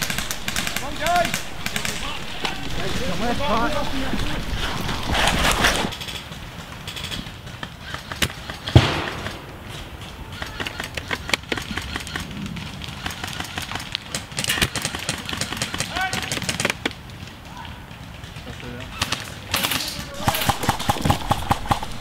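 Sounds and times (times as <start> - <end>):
airsoft gunfire snaps: 0.0 - 5.9, 8.5 - 10.8, 19.6 - 22.0.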